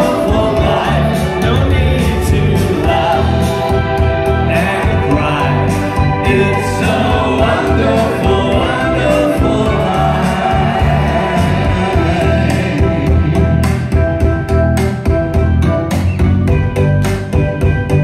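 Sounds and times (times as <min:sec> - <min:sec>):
backing singers: 0:00.0 - 0:13.7
male lead vocal: 0:00.0 - 0:13.7
live band playing pop song: 0:00.0 - 0:18.0.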